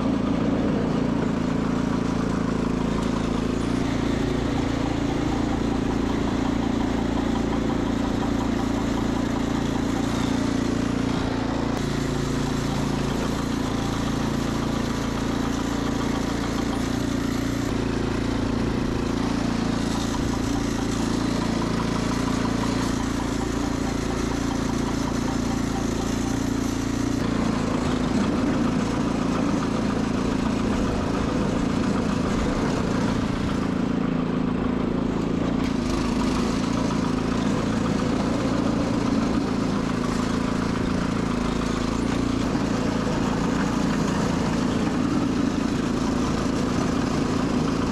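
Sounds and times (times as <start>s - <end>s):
garden tractor engine running: 0.0s - 47.9s.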